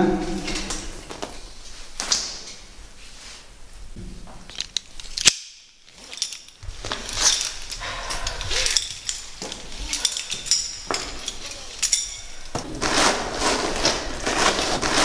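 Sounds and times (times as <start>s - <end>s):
rope and clothing rustling: 0.0s - 15.0s
metal gear clinking: 4.5s - 13.6s.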